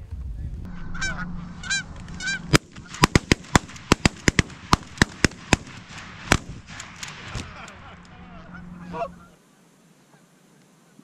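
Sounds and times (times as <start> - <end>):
goose honks: 0.7 - 3.0, 7.5 - 9.4
shotgun shots: 2.2 - 7.8.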